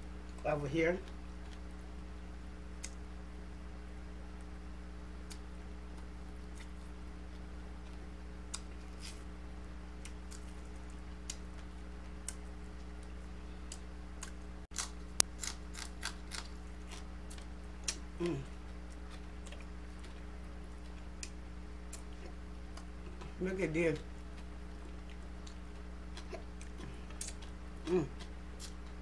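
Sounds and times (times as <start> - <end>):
steady low hum: 0.0 - 29.0
wet eating clicks and smacks: 2.8 - 3.0, 5.2 - 9.2, 10.0 - 18.1, 18.7 - 23.4, 24.0 - 29.0.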